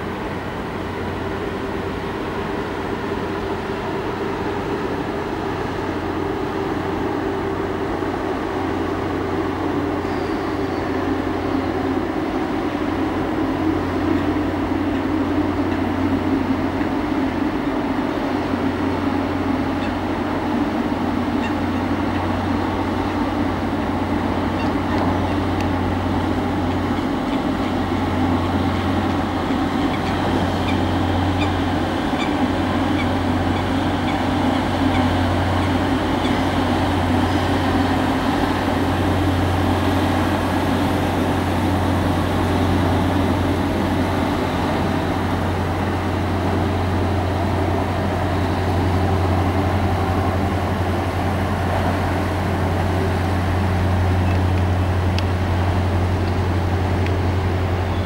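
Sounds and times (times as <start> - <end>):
boat engine running: 0.0 - 58.0.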